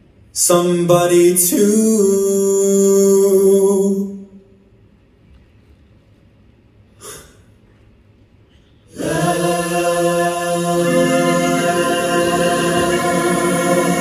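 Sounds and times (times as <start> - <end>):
choir-like held chord: 8.9 - 14.0.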